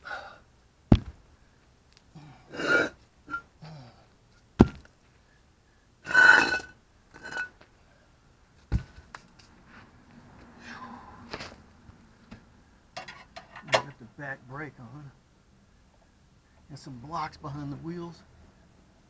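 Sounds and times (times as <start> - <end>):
concrete blocks thudding on pavement: 0.9 - 1.2, 4.6 - 4.9, 8.7 - 9.0.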